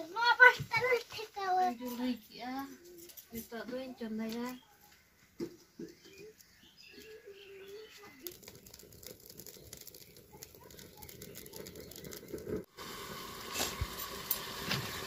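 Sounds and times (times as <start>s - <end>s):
firewood crackling and popping: 6.9s - 15.0s.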